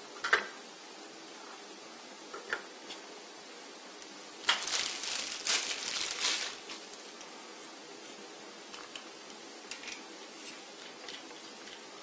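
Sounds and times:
plastic packaging crinkling: 4.4 - 7.3.

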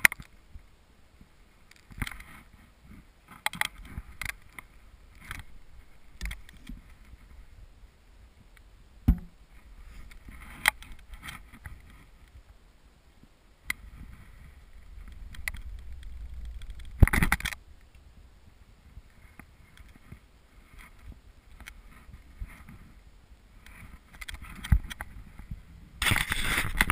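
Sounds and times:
bowstring release thump: 9.0 - 9.4
handling knocks: 9.1 - 9.4
low microphone rumble: 13.8 - 19.6.

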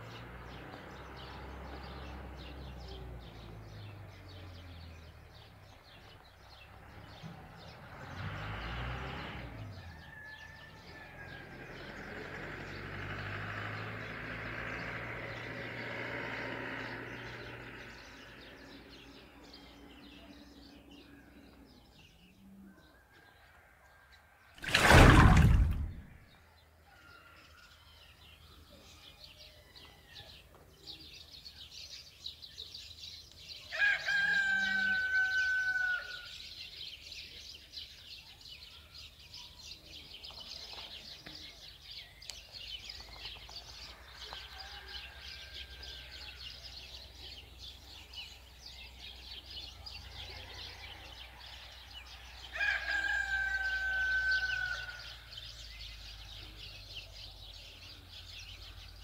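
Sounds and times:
small birds chirping: 0.0 - 10.8, 24.6 - 59.0
rooster crowing: 9.8 - 11.6, 33.7 - 36.3, 44.4 - 46.4, 52.4 - 55.2.

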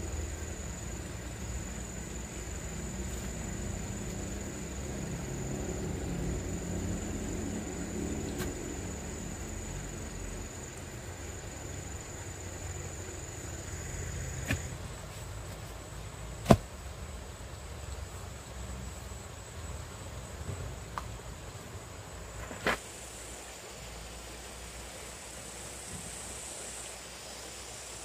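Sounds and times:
high insect buzz: 0.0 - 16.8
low outdoor rumble: 0.0 - 22.6.

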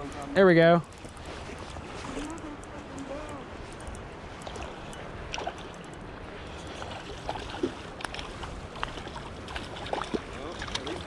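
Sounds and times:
creek water rushing: 0.0 - 11.0
fish splashing: 0.8 - 11.0
fishing reel clicks: 2.3 - 5.0.

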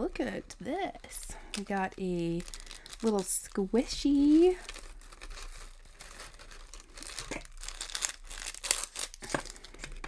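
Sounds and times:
gift bag crinkling and rustling: 0.7 - 10.0.

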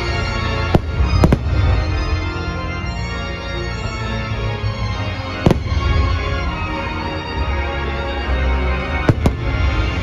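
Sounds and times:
organ-led show music: 0.0 - 10.0
firework bangs: 0.6 - 2.2, 5.4 - 6.6, 9.0 - 10.0.

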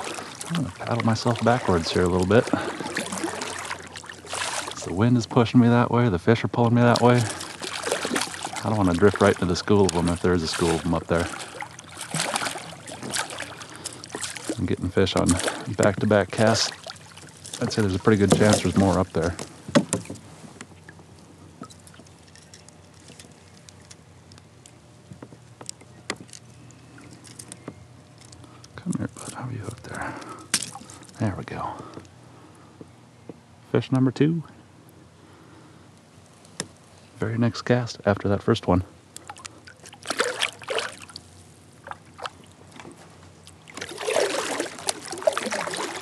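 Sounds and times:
small sharp splashes: 0.0 - 5.0, 6.9 - 20.1, 30.5 - 31.2, 39.2 - 46.0
faint water sounds: 0.0 - 46.0.

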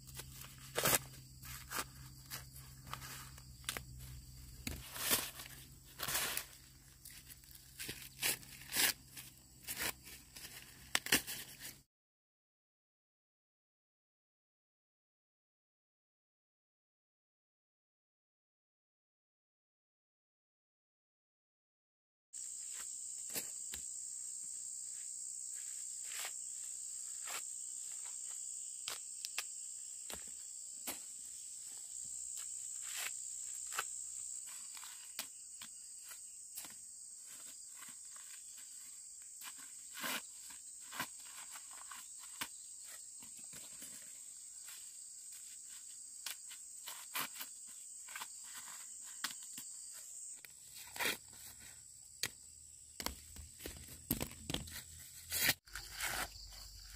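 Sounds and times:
insects droning: 0.0 - 11.8, 22.4 - 56.9
sharp snaps and rustles: 0.1 - 11.8.

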